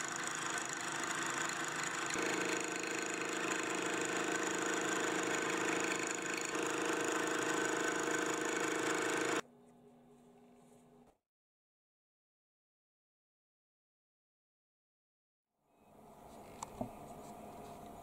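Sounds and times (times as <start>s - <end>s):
milling machine whir: 0.0s - 9.4s.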